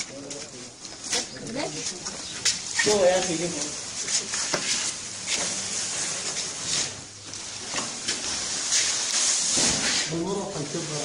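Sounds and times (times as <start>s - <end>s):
steady hiss: 2.5s - 11.0s.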